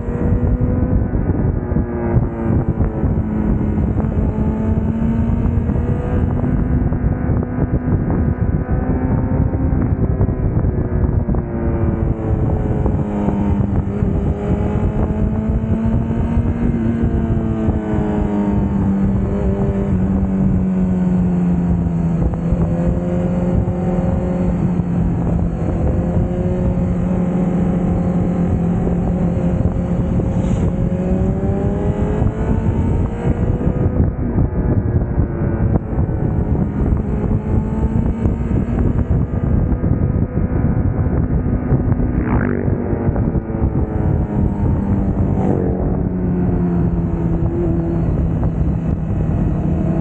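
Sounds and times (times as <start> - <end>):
motorcycle engine running: 0.0 - 50.0
wind rushing over microphone: 0.0 - 50.0.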